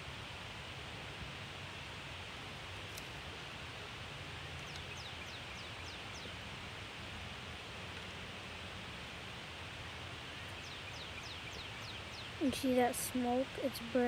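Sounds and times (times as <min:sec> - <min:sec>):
outdoor background hiss: 0:00.0 - 0:14.0
small bird chirping: 0:04.6 - 0:06.4.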